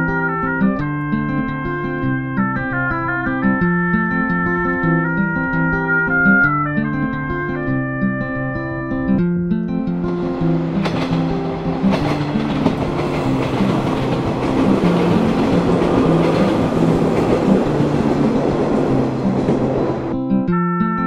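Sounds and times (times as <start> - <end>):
background music: 0.0 - 21.0
train rumbling past: 10.0 - 20.2.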